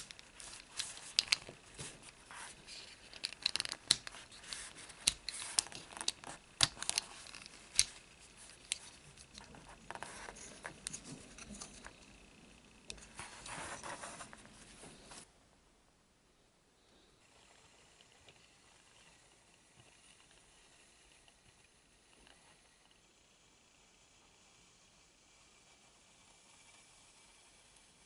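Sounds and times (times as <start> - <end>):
plastic toy parts clicking: 0.0 - 1.9, 2.7 - 11.9
toy rubbing and handling: 0.0 - 15.3.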